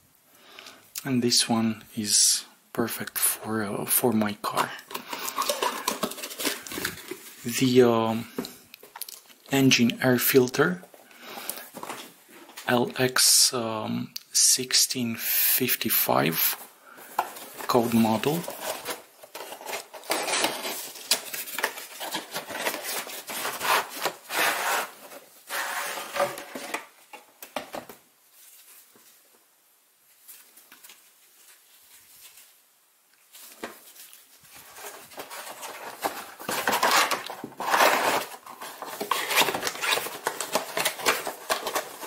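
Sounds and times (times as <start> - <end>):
cardboard box and plastic frame scraping: 18.3 - 26.9, 34.6 - 42.0.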